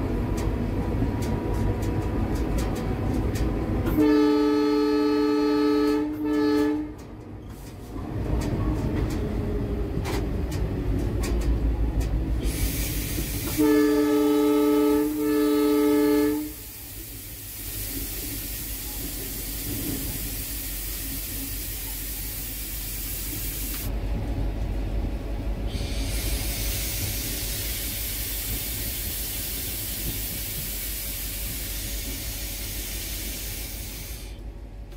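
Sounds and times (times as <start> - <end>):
locomotive horn blasts: 3.8 - 7.0, 13.5 - 16.7.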